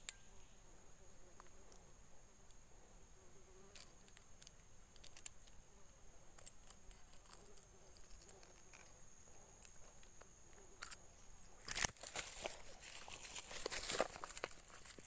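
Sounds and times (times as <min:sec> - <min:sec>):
faint high hiss: 0:00.0 - 0:15.0
small metal clicks and rattles: 0:03.7 - 0:05.6, 0:06.3 - 0:11.0.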